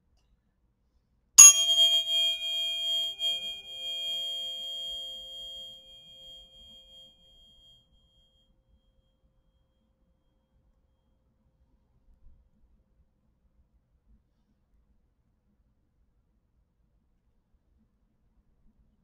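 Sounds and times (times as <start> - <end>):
tuning forks ringing: 1.4 - 7.0.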